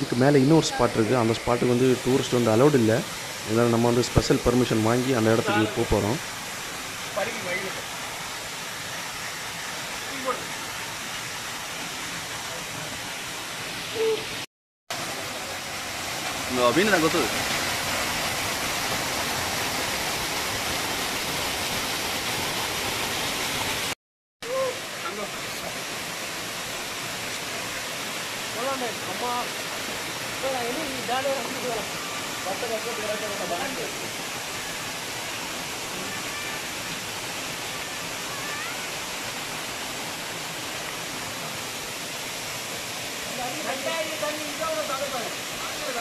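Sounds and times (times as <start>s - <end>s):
quieter water sound: 0.0s - 46.0s
waterfall rushing: 0.0s - 46.0s
person calling out: 13.9s - 14.4s, 24.4s - 25.2s.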